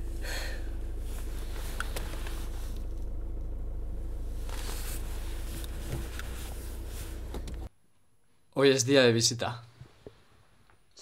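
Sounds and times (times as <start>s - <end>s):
car engine idling hum: 0.0s - 7.7s.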